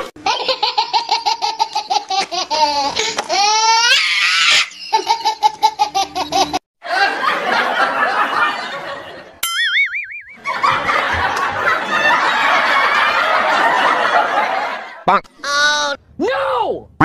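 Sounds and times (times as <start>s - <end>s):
squealing giggle: 2.5s - 6.6s.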